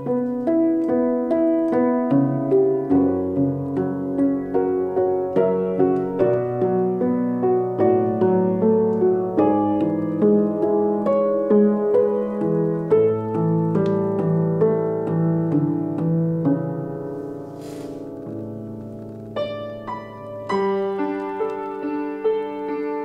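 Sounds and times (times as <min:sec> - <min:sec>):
solo piano playing: 0:00.0 - 0:23.0.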